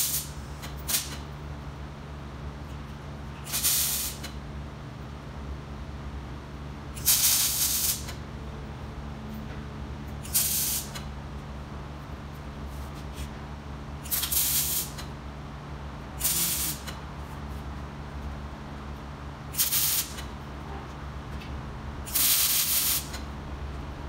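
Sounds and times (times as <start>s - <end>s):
welder arcs crackling: 0.0s - 1.2s, 7.0s - 8.1s, 14.1s - 15.0s, 16.2s - 17.0s
steady low hum: 0.0s - 24.0s.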